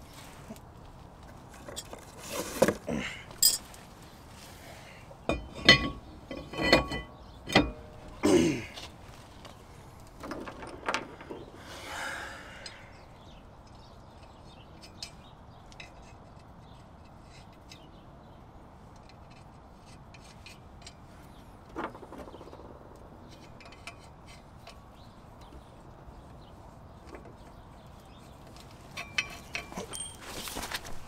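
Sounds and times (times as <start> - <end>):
rustle: 0.0 - 31.0
lug nuts clinking: 3.4 - 3.8, 5.2 - 11.5, 19.0 - 31.0.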